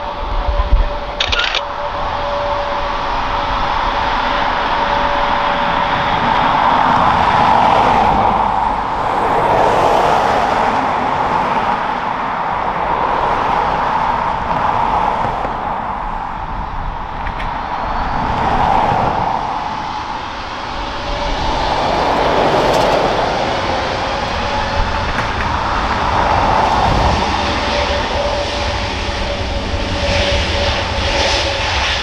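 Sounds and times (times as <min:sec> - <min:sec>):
jet engines at taxi thrust: 0:00.0 - 0:32.0.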